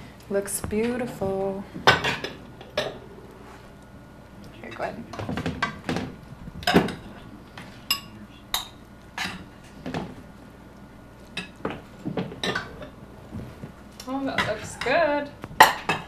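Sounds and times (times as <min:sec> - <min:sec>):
utensils clinking against dishes: 0:06.6 - 0:10.1.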